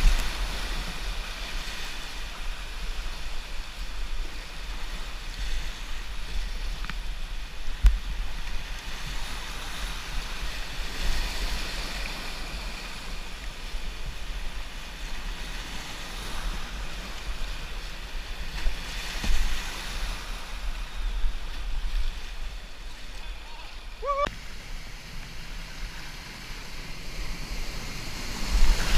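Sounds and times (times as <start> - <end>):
wind rumble on microphone: 0.0 - 28.9
rushing whitewater: 15.8 - 28.9.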